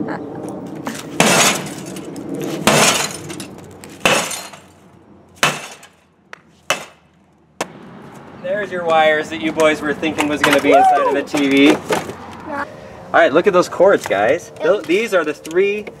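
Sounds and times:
crash of breaking pieces: 1.0s - 4.7s
metal bat smashing television: 1.1s - 3.4s, 4.0s - 4.6s, 5.4s - 5.9s.

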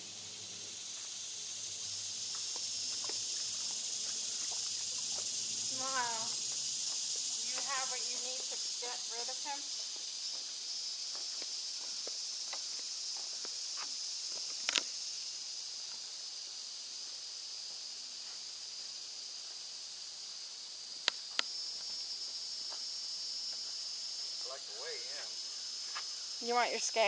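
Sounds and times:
high-pitched insect chorus: 0.0s - 27.0s
sharp clicks: 14.6s - 14.9s.

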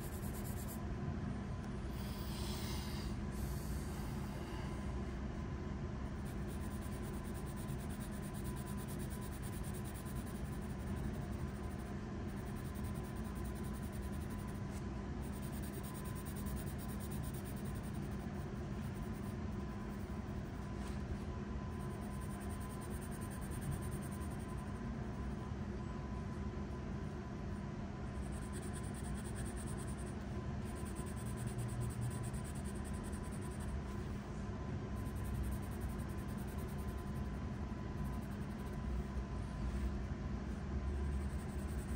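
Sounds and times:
pencil scratching on paper: 0.0s - 0.8s, 6.1s - 21.1s
steady low hum: 0.0s - 41.9s.

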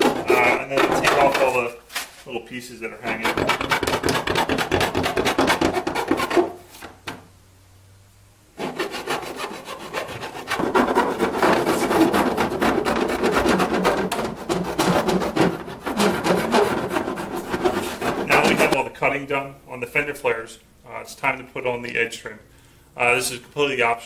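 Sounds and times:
hand file rasping on plastic: 0.0s - 1.6s, 3.0s - 6.6s, 8.6s - 18.8s.

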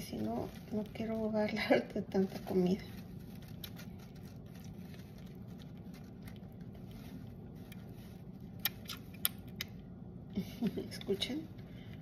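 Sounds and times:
low hum: 0.0s - 12.0s
squirrel suckling wet clicks: 3.5s - 10.0s.

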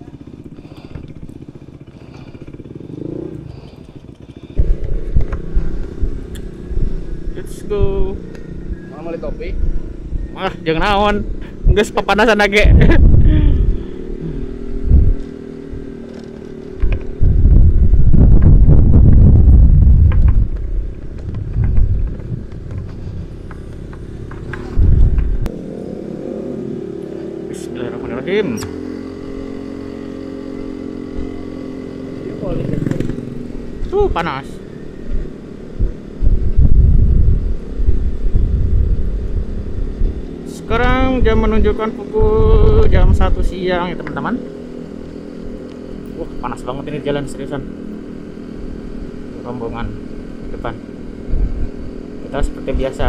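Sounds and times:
low rumble: 0.0s - 15.8s, 16.8s - 25.5s, 35.0s - 43.6s
scooter engine idling and pulling away: 0.0s - 53.0s.

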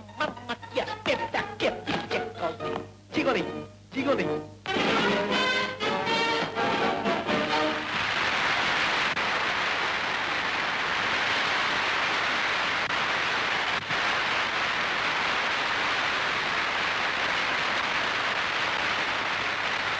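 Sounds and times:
audience applause: 7.2s - 19.9s.

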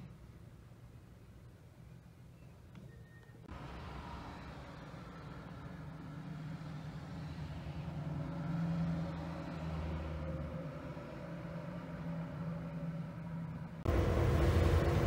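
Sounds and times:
diesel locomotive idling: 13.9s - 15.0s.

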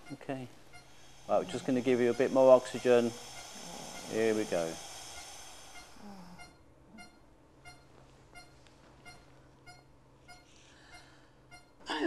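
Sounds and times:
faint low hum: 0.0s - 12.0s
patient monitor beeping: 0.0s - 12.0s.

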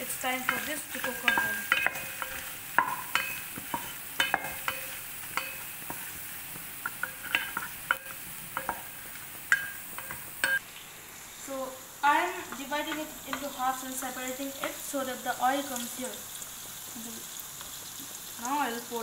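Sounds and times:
meat sizzling in hot oil: 0.0s - 19.0s
wooden spatula clinking on pot: 0.4s - 6.1s, 6.8s - 10.6s.

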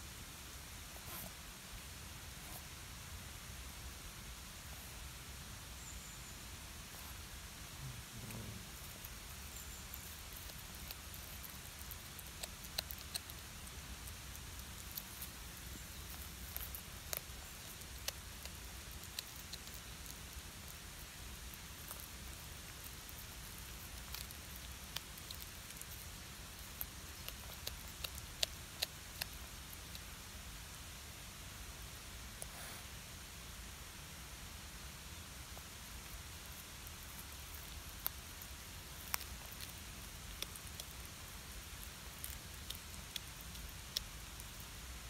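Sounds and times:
faint steady hiss: 0.0s - 45.0s
cat crunching fish: 8.6s - 30.2s, 36.0s - 44.8s.

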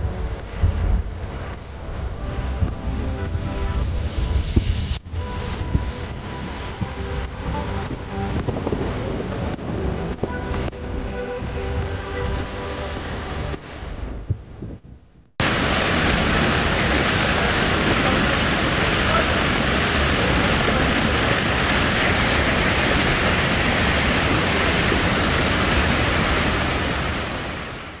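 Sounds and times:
music: 0.0s - 15.3s
loud rushing noise: 15.4s - 28.0s.

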